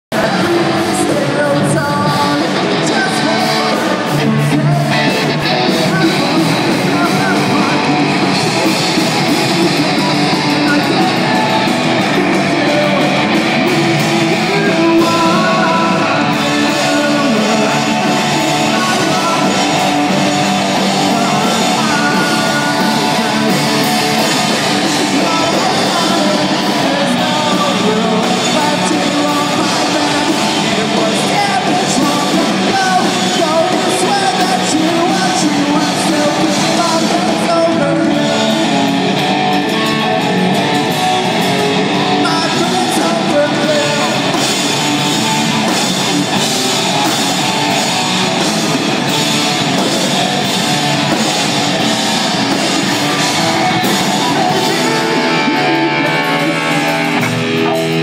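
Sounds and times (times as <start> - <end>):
electric bass: 0.0 - 58.0
electric guitars: 0.0 - 58.0
person singing: 0.0 - 58.0
drum kit: 0.1 - 58.0.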